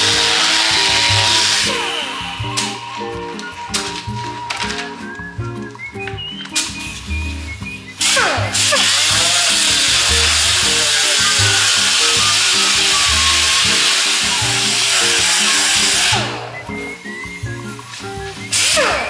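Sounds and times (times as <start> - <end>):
air sander grinding hiss: 0.0 - 5.0, 8.0 - 16.3
background music: 0.0 - 19.0.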